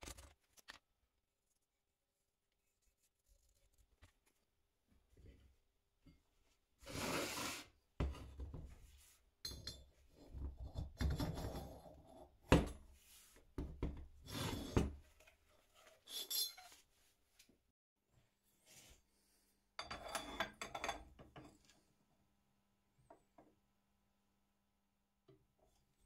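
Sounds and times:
metal parts scraping and rubbing: 0:15.8 - 0:16.8.

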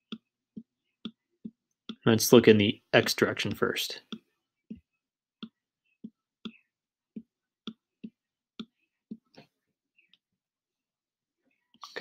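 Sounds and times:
stylus tapping on tablet screen: 0:00.0 - 0:02.0, 0:04.0 - 0:10.3.

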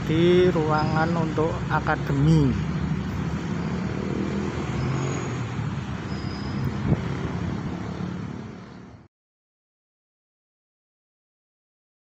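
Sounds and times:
road traffic hum: 0:00.0 - 0:09.1.

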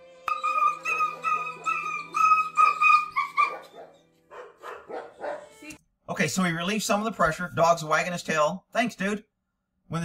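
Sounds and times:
dog yelping in pain: 0:00.3 - 0:05.5.

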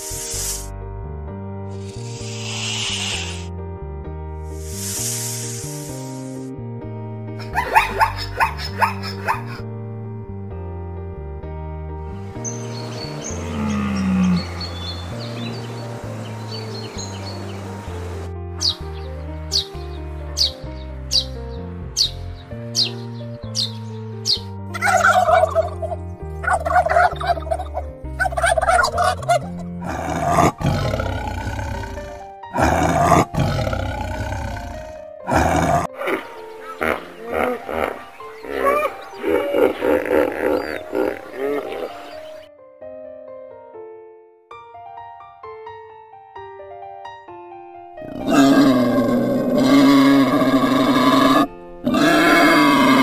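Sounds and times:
soft background music: 0:00.0 - 0:53.0
turkey gobbling: 0:07.5 - 0:09.6, 0:24.8 - 0:29.5
wild boar calling loudly: 0:24.8 - 0:27.6, 0:28.2 - 0:42.3, 0:48.0 - 0:53.0
tiger roaring: 0:29.8 - 0:36.2, 0:48.0 - 0:53.0.

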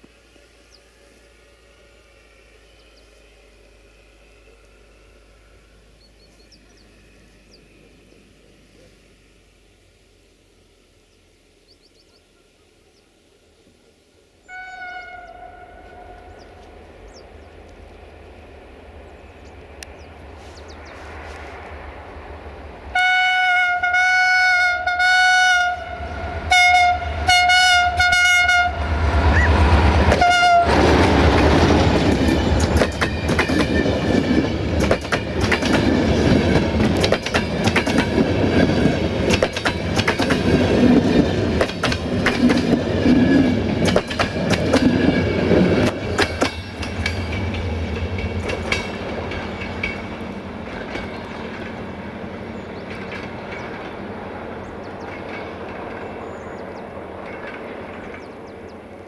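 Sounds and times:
train passing: 0:00.0 - 0:59.0
locomotive horn blasts: 0:00.9 - 0:06.0, 0:14.4 - 0:16.5, 0:22.9 - 0:31.0
wheels clicking over rail joints: 0:30.0 - 0:59.0.

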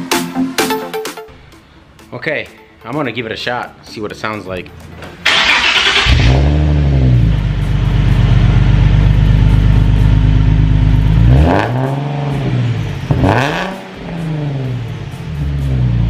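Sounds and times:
car engine idling and revving: 0:05.2 - 0:16.0.

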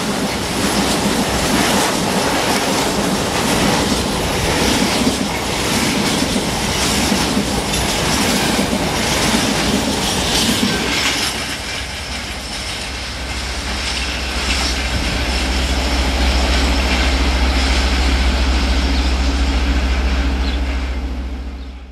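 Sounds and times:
train wheels clattering on rails: 0:00.0 - 0:19.1
low rumble: 0:12.4 - 0:21.9.

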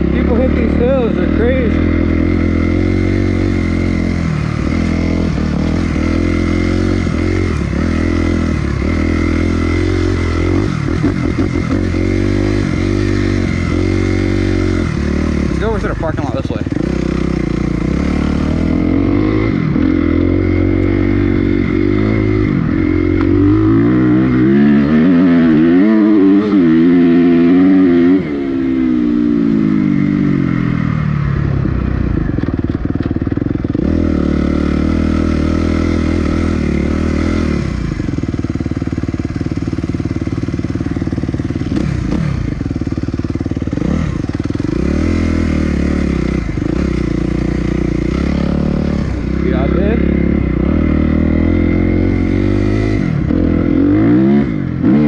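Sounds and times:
dirt bike engine revving: 0:00.0 - 0:55.0.

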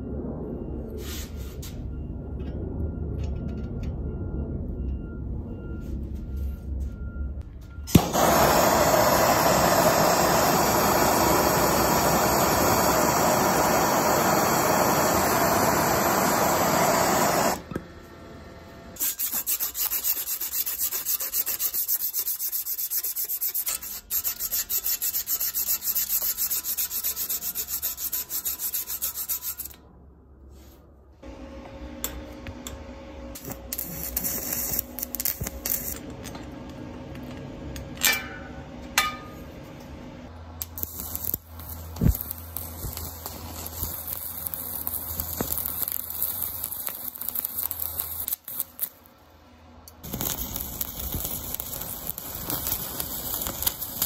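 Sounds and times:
brazing torch burning: 0:07.9 - 0:17.8, 0:33.3 - 0:36.1, 0:40.6 - 0:49.1, 0:50.0 - 0:54.0
hand sanding metal tube: 0:19.0 - 0:29.8
tool sounds on bicycle wheel: 0:19.0 - 0:29.9, 0:33.4 - 0:36.1, 0:40.6 - 0:49.0, 0:50.1 - 0:54.0.

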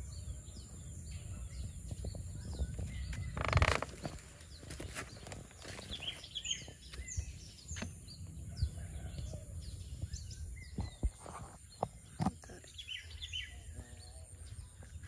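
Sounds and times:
birds chirping: 0:00.0 - 0:15.0
wind rumble on microphone: 0:00.0 - 0:15.0
footsteps on bamboo slats: 0:02.0 - 0:08.0.

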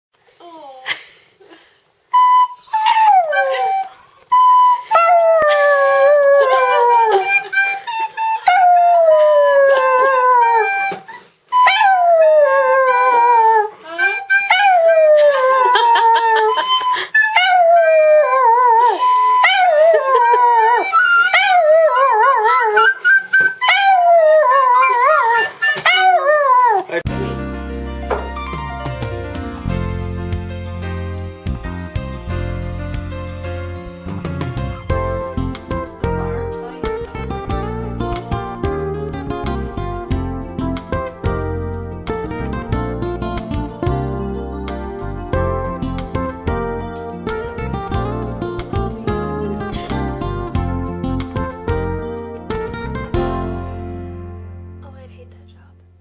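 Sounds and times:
dog howling: 0:05.0 - 0:07.6, 0:11.6 - 0:26.9.

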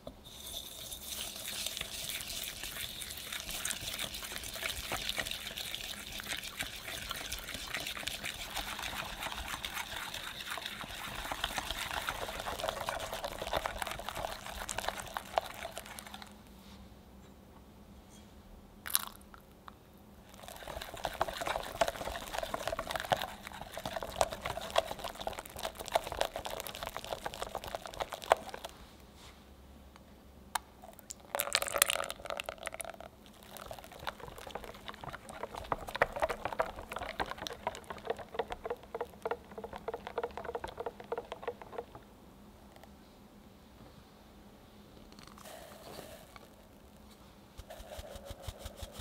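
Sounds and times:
liquid pouring into bowl: 0:00.3 - 0:16.3, 0:18.9 - 0:19.2, 0:20.3 - 0:28.7, 0:30.9 - 0:42.0
whisk swishing batter in glass bowl: 0:00.3 - 0:16.3, 0:20.4 - 0:28.7, 0:33.4 - 0:42.0, 0:47.6 - 0:49.0.

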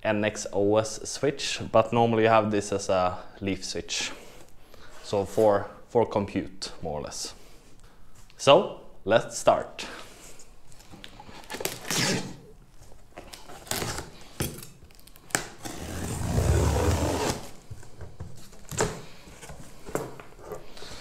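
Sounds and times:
box cutter slitting packing tape: 0:11.5 - 0:12.4, 0:13.4 - 0:17.6.

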